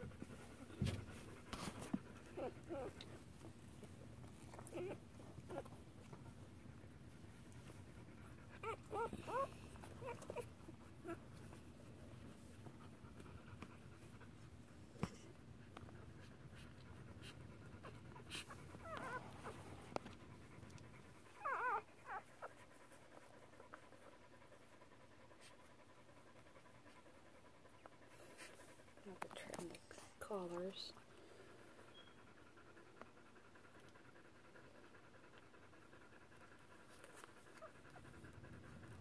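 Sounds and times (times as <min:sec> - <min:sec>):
low steady rustle: 0:00.0 - 0:39.0
dog whimpering: 0:02.2 - 0:03.1, 0:04.4 - 0:05.8, 0:08.5 - 0:11.2, 0:18.8 - 0:19.6, 0:21.3 - 0:22.6.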